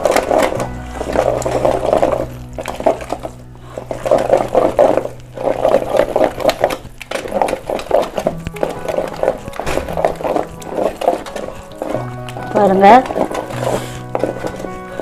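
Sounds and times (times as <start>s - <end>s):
wet squelching and scraping in a pot: 0.0s - 15.0s.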